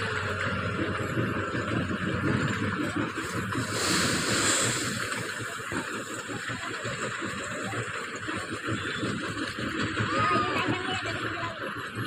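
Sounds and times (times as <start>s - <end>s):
diesel engine running: 0.0s - 12.0s
short rushing hiss: 3.6s - 5.4s.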